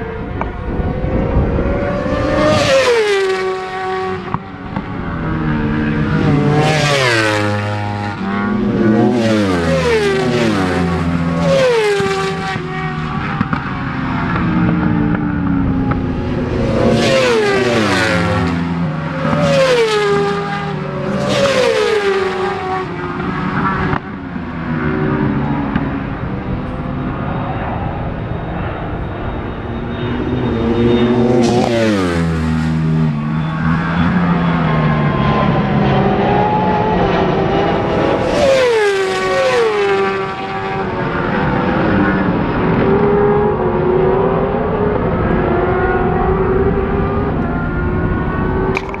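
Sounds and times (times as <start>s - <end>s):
motorcycles accelerating and shifting gears: 0.0s - 49.0s
racing motorcycles passing: 0.0s - 49.0s.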